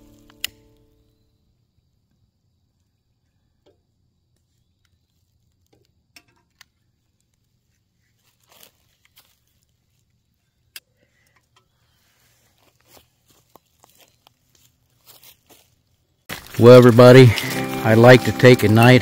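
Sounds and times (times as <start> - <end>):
small clicks and crackles: 4.3 - 11.7.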